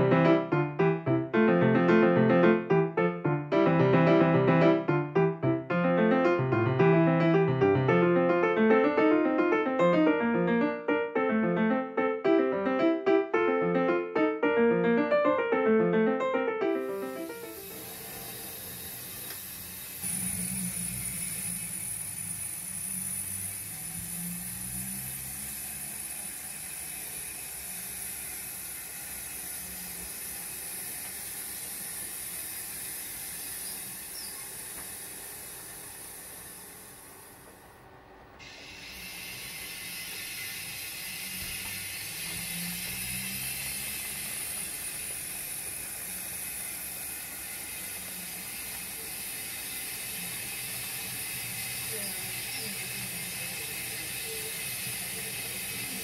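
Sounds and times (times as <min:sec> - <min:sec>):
model locomotive steam hiss: 0:16.6 - 0:56.0.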